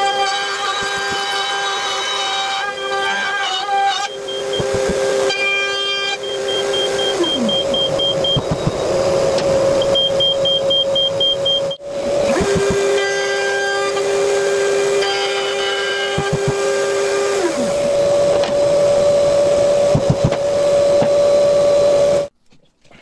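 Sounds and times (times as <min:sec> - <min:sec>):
router high whine: 0:00.0 - 0:22.3
wood knocking: 0:00.6 - 0:01.5
shop vacuum running: 0:03.7 - 0:22.3.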